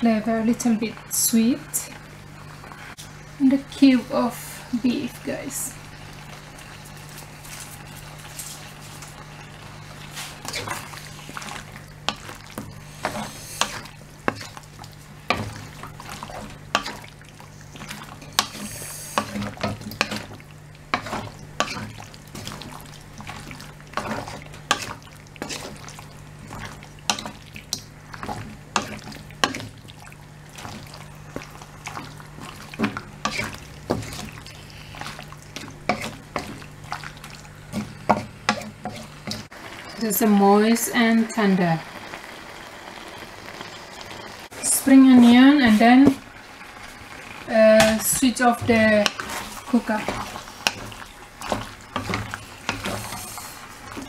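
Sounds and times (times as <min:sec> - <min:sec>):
spatula clacking and scraping wok: 0:10.1 - 0:29.8, 0:30.5 - 0:39.5, 0:47.7 - 0:54.0.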